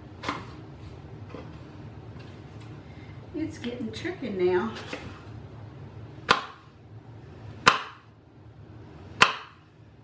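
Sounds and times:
knife chopping on cutting board: 0:06.2 - 0:06.7, 0:07.6 - 0:08.0, 0:09.2 - 0:09.6.

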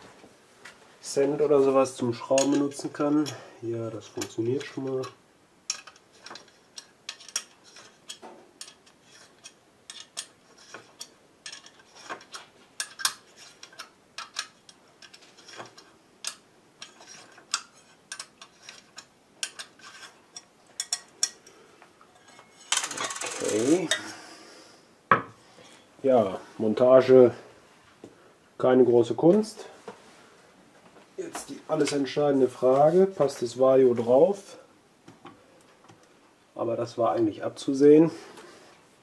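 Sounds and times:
coin turning screws in metal: 0:04.2 - 0:21.4, 0:22.2 - 0:24.0.

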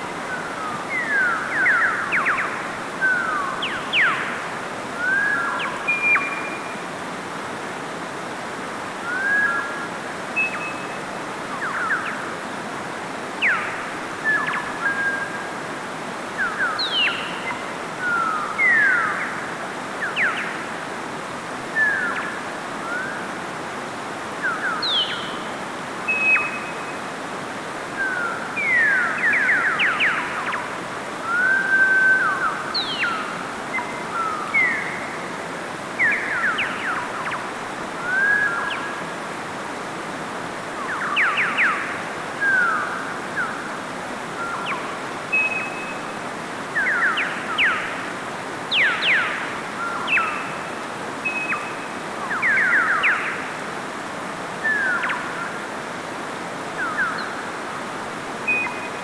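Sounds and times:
stream rushing over rocks: 0:00.0 - 0:59.0
birds chirping and whistling: 0:48.7 - 0:50.6, 0:51.2 - 0:53.3.

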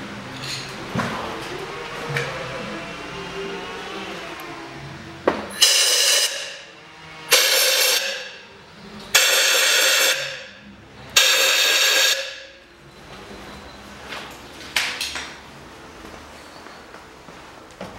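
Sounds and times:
compressed air hissing: 0:05.6 - 0:06.7, 0:07.3 - 0:08.4, 0:09.2 - 0:10.6, 0:11.2 - 0:12.6.

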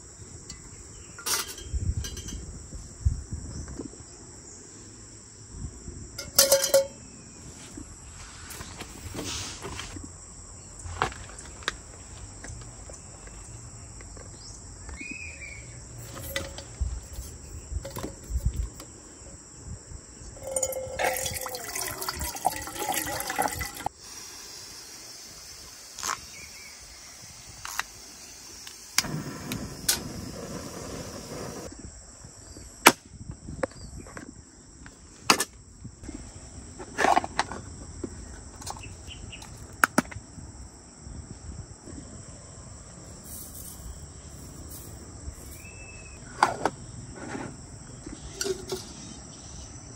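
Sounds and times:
insects chirring: 0:00.0 - 0:49.9
camp gear clicking and knocking: 0:06.2 - 0:07.0
water pouring: 0:20.4 - 0:24.3.

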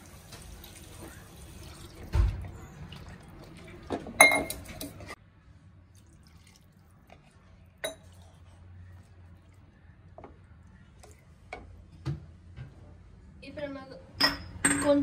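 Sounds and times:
metal cookware clattering: 0:03.9 - 0:05.2.

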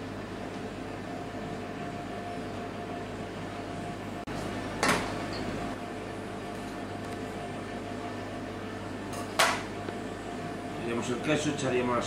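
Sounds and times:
kitchen machinery hum: 0:00.0 - 0:12.0.

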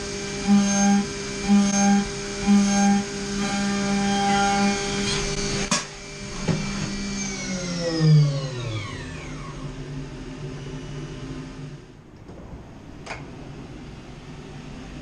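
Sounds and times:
milling machine spindle whine: 0:00.0 - 0:11.9.

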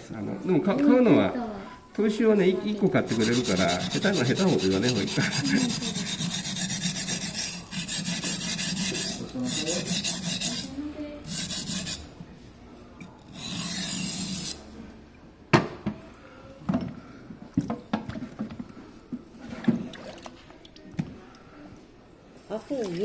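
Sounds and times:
knife rubbing on whetstone: 0:03.0 - 0:12.1, 0:13.3 - 0:14.6.

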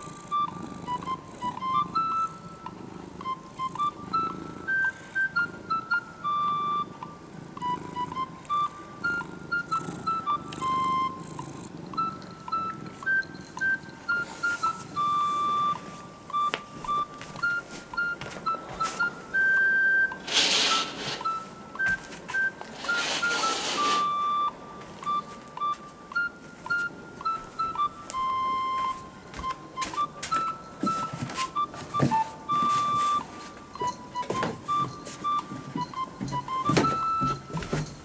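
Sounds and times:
light background melody: 0:00.0 - 0:38.0
short bursts of noise: 0:20.2 - 0:21.4, 0:22.8 - 0:24.2.

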